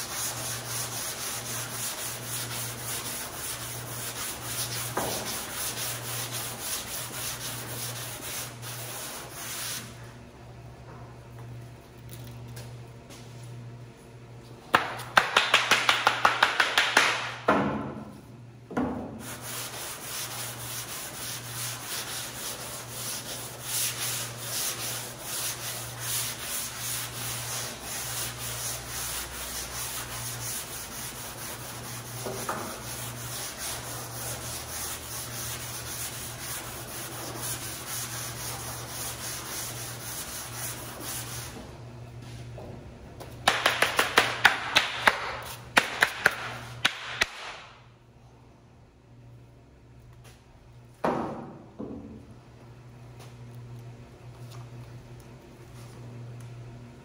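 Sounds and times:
sanding block strokes: 0:00.0 - 0:09.9, 0:19.2 - 0:41.6.

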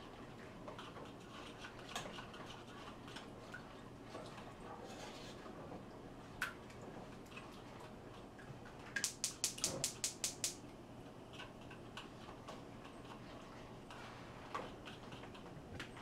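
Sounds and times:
whisk clicking against bowl: 0:09.0 - 0:10.6.

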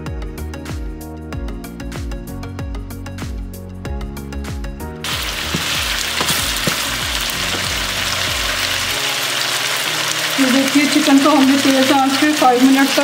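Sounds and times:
background music: 0:00.0 - 0:13.0
chicken sizzling in oil: 0:05.0 - 0:13.0.

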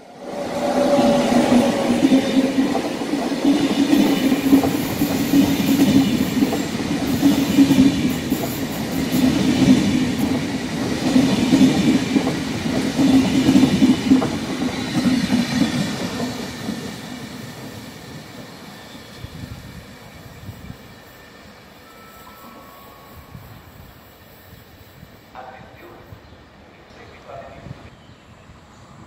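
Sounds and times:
train wheels rumbling on rails: 0:00.0 - 0:21.7.

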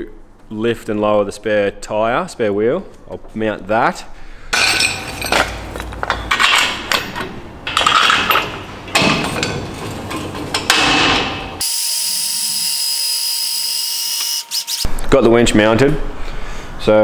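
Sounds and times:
steel clanking and knocking: 0:04.6 - 0:11.6.

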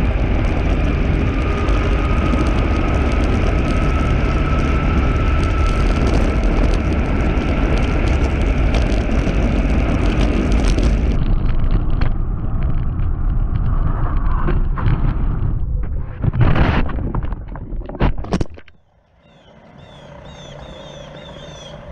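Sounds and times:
thin motor whine: 0:00.0 - 0:10.2, 0:18.8 - 0:21.9
wind rushing on microphone: 0:00.0 - 0:18.7
wheels rumbling on asphalt: 0:00.0 - 0:21.9.

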